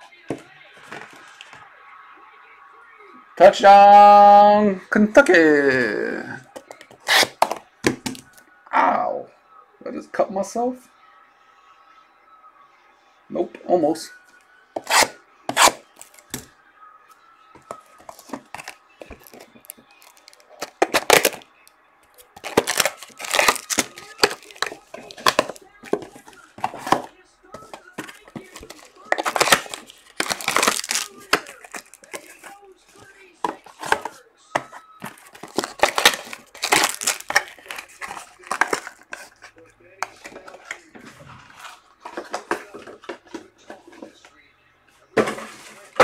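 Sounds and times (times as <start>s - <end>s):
box being torn open: 7.0s - 7.6s, 14.8s - 16.2s, 18.1s - 21.4s, 22.4s - 27.1s, 28.0s - 32.5s, 35.1s - 39.1s
plastic wrapping crinkling: 17.7s - 21.4s, 22.1s - 39.5s.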